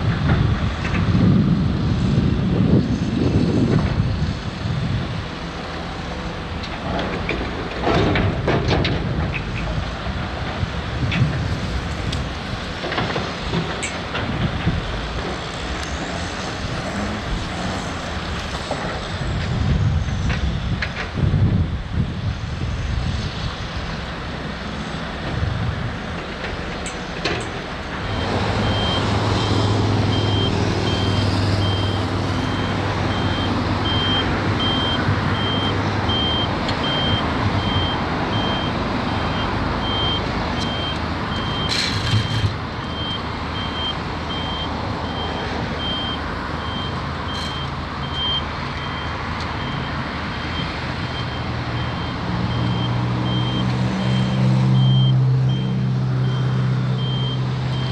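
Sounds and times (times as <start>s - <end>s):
engine running: 0.0s - 57.9s
reversing alarm beeping: 28.0s - 57.9s.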